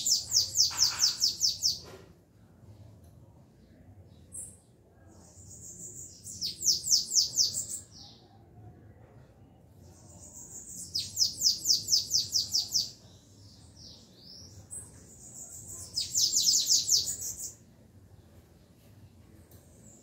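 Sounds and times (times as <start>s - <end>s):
canaries singing trills: 0.0s - 2.1s, 4.2s - 8.4s, 9.8s - 17.6s.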